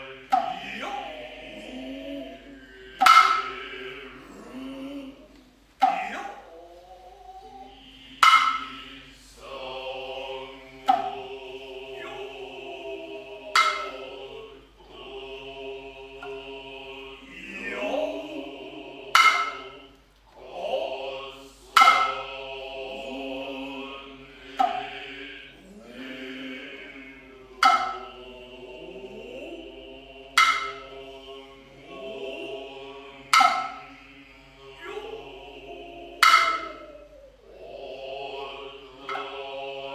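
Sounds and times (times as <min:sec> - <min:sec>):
breathy flute: 0:00.0 - 0:14.2, 0:32.0 - 0:38.3
chorus chanting in unison: 0:00.0 - 0:39.9
drawn-out rising calls: 0:00.0 - 0:39.9.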